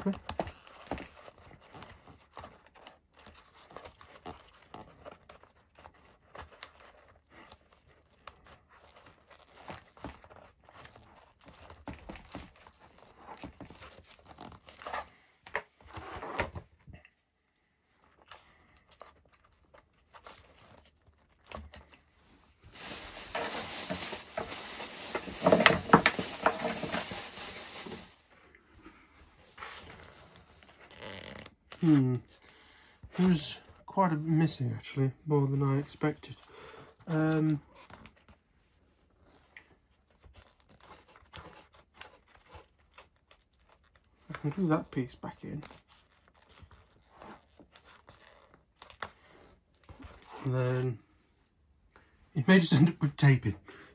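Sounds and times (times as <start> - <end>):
foam parts creaking and rubbing: 0.0 - 51.6
rustling with knocks: 19.6 - 28.4.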